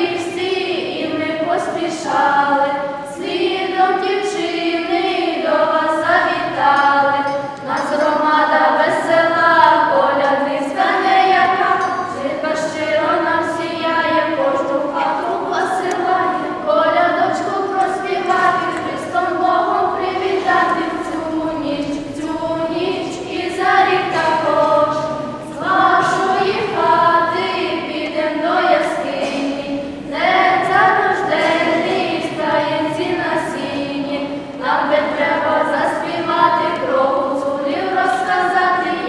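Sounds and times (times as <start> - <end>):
girls singing unaccompanied: 0.0 - 39.0.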